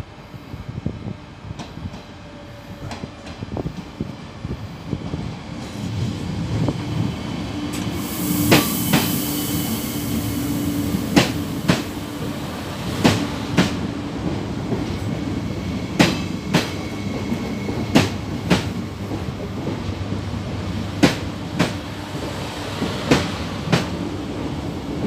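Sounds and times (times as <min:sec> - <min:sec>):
hiss: 0:07.8 - 0:12.5
train wheels clicking over rail joints: 0:11.0 - 0:12.3, 0:12.9 - 0:25.0.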